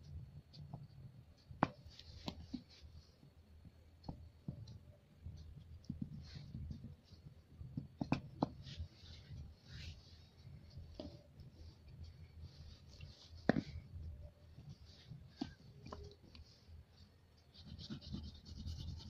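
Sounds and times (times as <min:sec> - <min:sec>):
pastel scratching on paper: 0:17.5 - 0:19.0.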